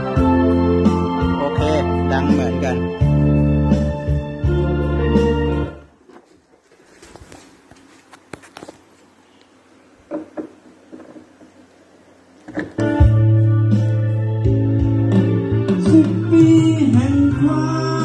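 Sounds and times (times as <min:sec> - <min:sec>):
music from a speaker: 0:00.0 - 0:05.9, 0:12.6 - 0:18.0
soft knocks and rustles: 0:06.0 - 0:09.1, 0:10.1 - 0:11.6.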